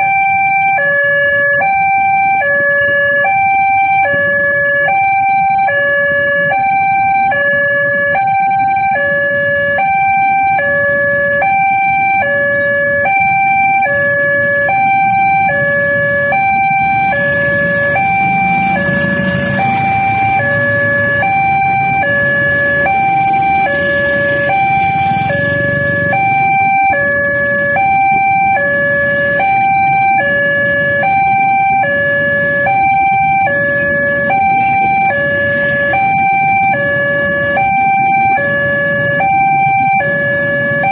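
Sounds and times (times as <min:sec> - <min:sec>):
two-tone crossing alarm: 0:00.0 - 0:40.9
diesel locomotive rumble: 0:12.8 - 0:40.9.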